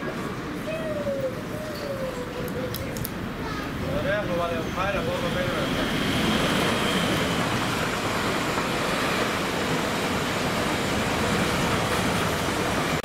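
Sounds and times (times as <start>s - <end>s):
train passing at speed: 0.0s - 13.0s.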